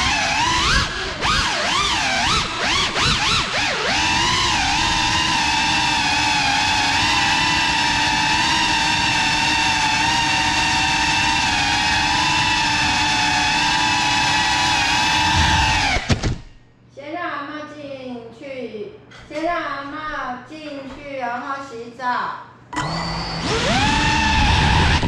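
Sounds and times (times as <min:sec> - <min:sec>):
drone motors whining: 0:00.0 - 0:16.5, 0:22.8 - 0:25.0.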